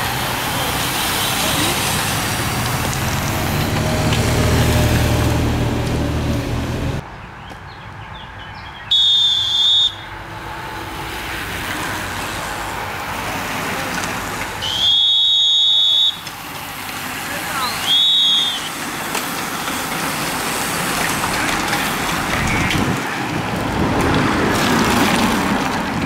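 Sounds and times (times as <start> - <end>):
cyclists and vehicles passing: 0.0 - 26.0
road noise: 0.0 - 26.0
shrill whistle: 8.9 - 10.1, 14.6 - 16.3, 17.6 - 18.7.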